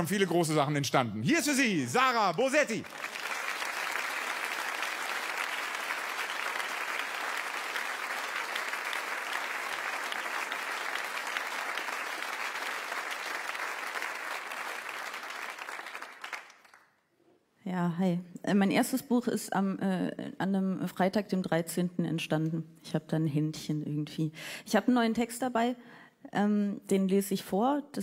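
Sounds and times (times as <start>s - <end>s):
audience applauding: 1.4s - 16.9s.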